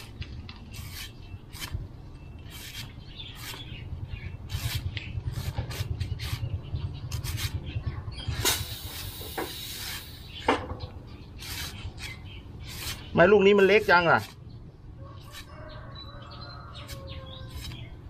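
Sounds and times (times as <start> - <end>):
cleaver scraping coconut husk: 0.0 - 6.5, 7.1 - 7.7, 11.3 - 14.4, 15.2 - 18.0
low rumble: 0.0 - 12.7
hiss: 8.4 - 10.4.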